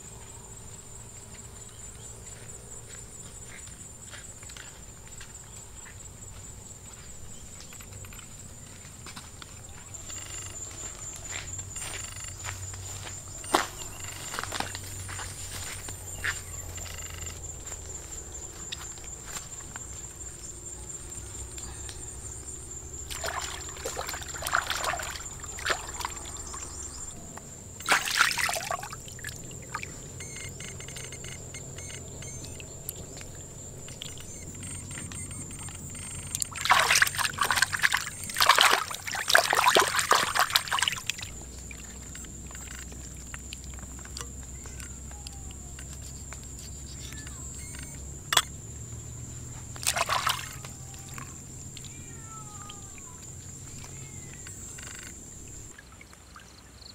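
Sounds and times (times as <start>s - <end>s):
high-pitched insect drone: 9.6s - 43.3s, 44.3s - 55.7s
water pouring and sloshing: 22.9s - 26.9s, 27.8s - 30.0s, 36.4s - 44.4s, 49.8s - 51.3s.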